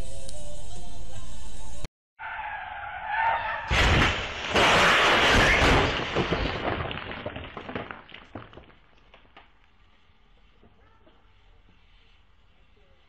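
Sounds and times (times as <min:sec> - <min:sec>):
car crash impact: 0:03.6 - 0:08.6
debris clattering: 0:03.7 - 0:09.4.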